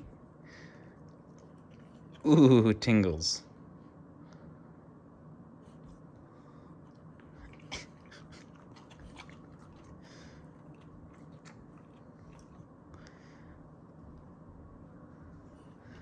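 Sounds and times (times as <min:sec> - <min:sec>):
puppy chewing and lip smacking: 0:01.0 - 0:02.3, 0:06.8 - 0:13.1.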